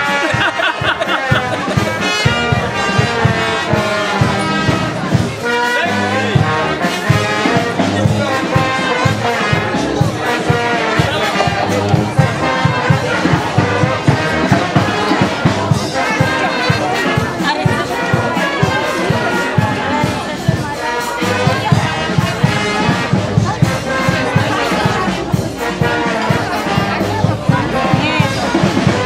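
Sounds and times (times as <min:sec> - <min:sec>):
brass band playing: 0:00.0 - 0:29.0.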